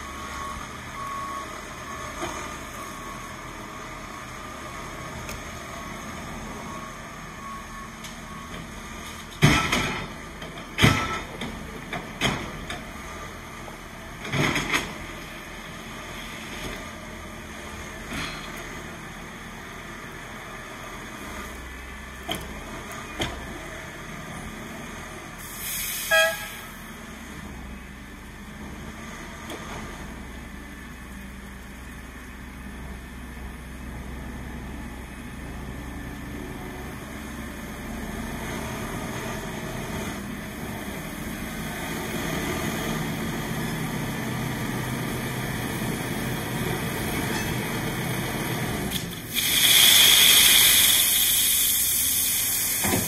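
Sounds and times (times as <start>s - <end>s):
diesel excavator engine running: 0.0s - 53.0s
short horn toot: 25.7s - 26.8s.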